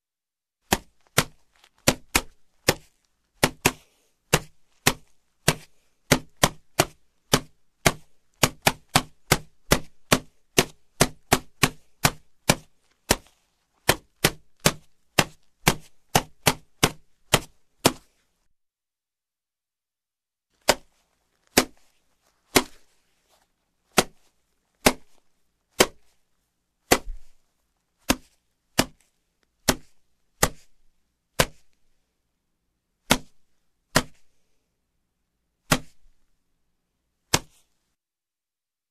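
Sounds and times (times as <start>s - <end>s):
body slaps: 0.7s - 18.2s, 20.6s - 23.0s, 23.9s - 26.2s, 26.9s - 27.4s, 28.0s - 30.8s, 31.4s - 31.8s, 33.0s - 34.3s, 35.7s - 36.2s, 37.3s - 37.7s.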